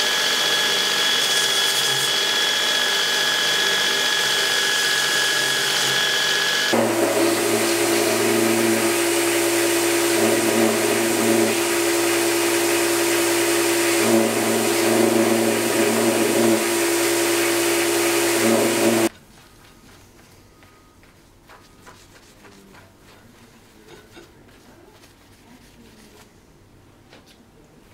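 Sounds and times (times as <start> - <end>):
belt grinder grinding metal: 0.1 - 19.1.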